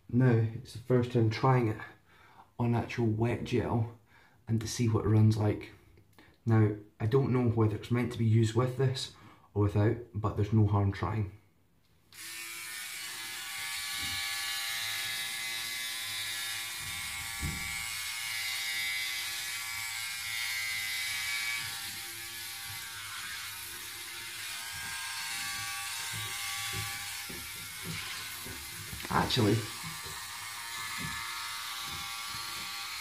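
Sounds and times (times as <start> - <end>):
electric shaver buzzing: 12.1 - 33.0
shaver knocking against skin: 16.8 - 17.8, 24.8 - 29.1, 30.9 - 31.2.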